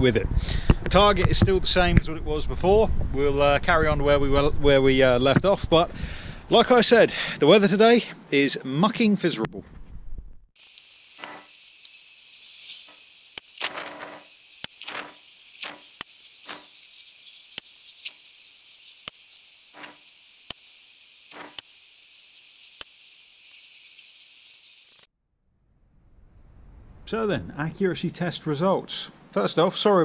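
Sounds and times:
steady high hiss: 10.6 - 25.1.

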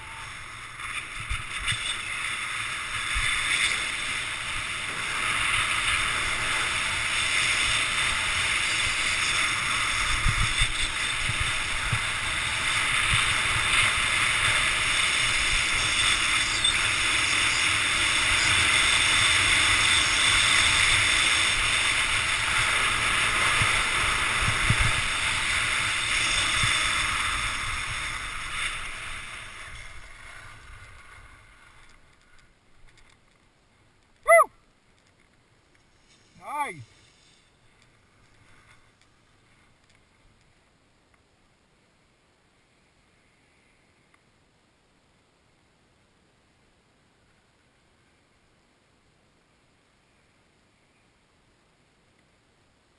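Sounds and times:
skis running over packed snow: 0.0 - 32.4
person shouting: 34.3 - 34.5, 36.4 - 36.8.

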